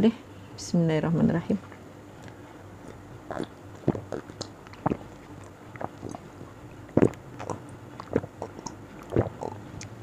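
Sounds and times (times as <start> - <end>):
person swallowing water: 2.8 - 10.0.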